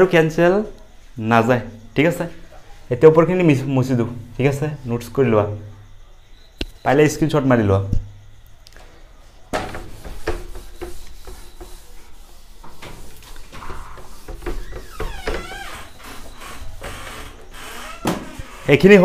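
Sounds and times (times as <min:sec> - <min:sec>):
duster rubbing on whiteboard: 0:09.6 - 0:18.5.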